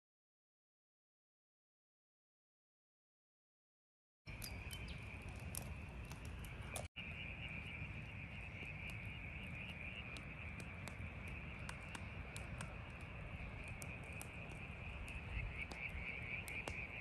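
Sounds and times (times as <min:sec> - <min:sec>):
campfire crackling and popping: 0:04.3 - 0:17.0
night insects chorus: 0:04.3 - 0:17.0.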